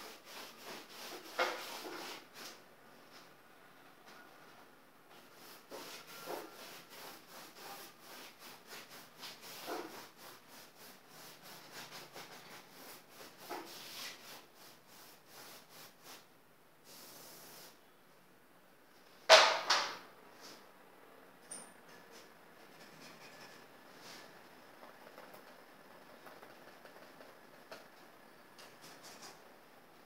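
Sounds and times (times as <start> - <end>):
paintbrush swishing on canvas: 5.4 - 16.2.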